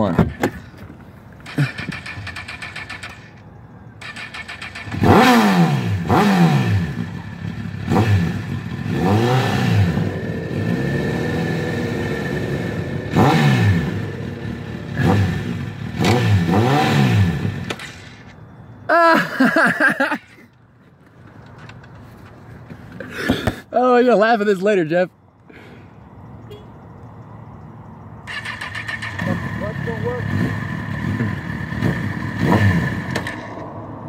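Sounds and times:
motorcycle engine revving: 1.4 - 3.4, 4.0 - 18.3, 28.2 - 34.0.

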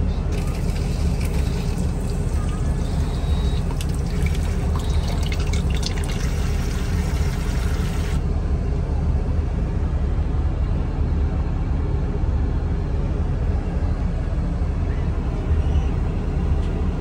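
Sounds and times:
aircraft cabin drone: 0.0 - 17.0
tap water splashing into basin: 0.4 - 8.2.

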